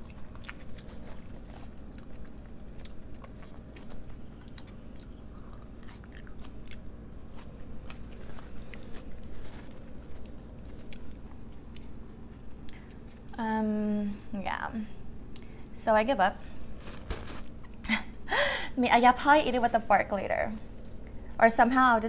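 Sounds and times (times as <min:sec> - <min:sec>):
chewing food: 0:00.0 - 0:13.4.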